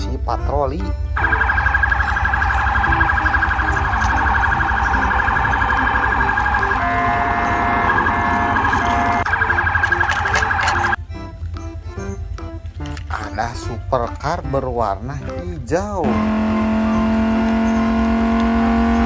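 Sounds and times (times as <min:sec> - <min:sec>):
police siren warbling: 0:01.2 - 0:11.0.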